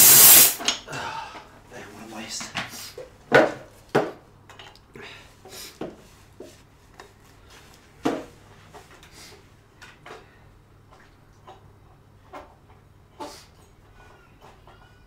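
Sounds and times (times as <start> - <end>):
knocks of hard objects: 3.3 - 4.2.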